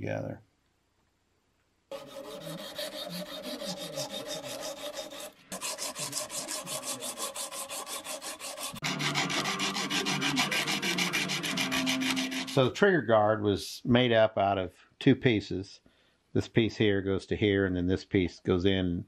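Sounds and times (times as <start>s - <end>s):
abrasive cloth rubbing on iron: 1.9s - 12.7s.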